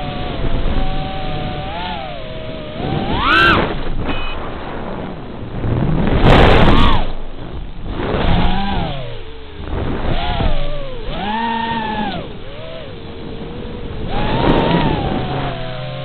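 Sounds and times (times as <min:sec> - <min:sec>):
quadcopter motors whining: 0:00.0 - 0:04.6, 0:06.4 - 0:07.3, 0:07.9 - 0:16.0.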